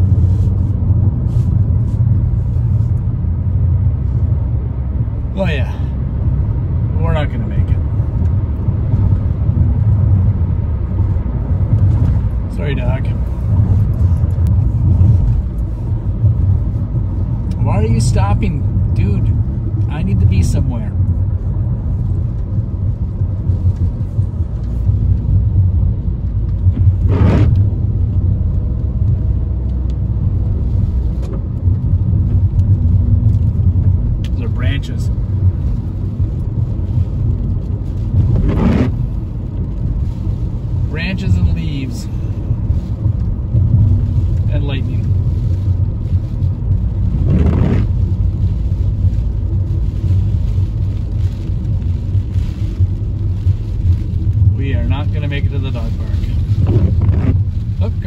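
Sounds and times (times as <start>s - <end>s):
rain tapping on windshield: 0.0s - 58.0s
road and wind rumble in car: 0.0s - 58.0s
windshield wiper swish: 26.6s - 27.8s, 35.2s - 40.9s, 42.6s - 58.0s.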